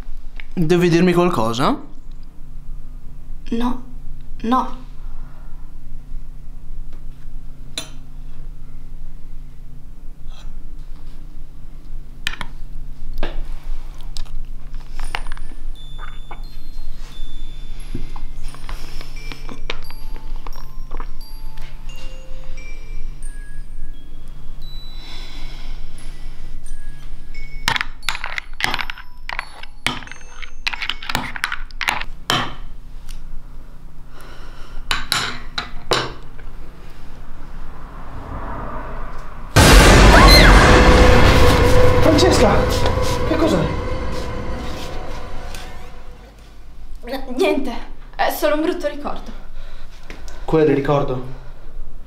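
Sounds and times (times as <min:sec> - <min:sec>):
steady low hum: 0:36.5 - 0:46.6.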